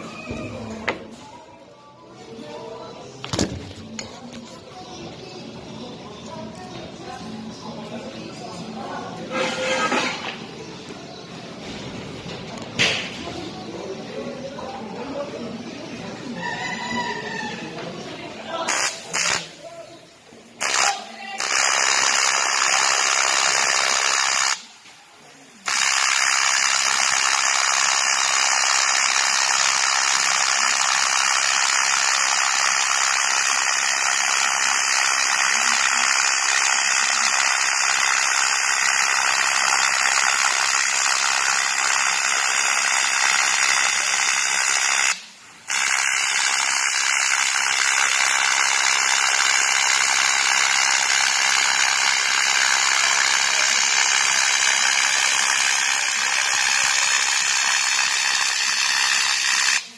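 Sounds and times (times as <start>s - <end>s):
welding arc buzzing hiss: 18.5s - 19.6s, 20.6s - 24.9s, 25.6s - 59.9s.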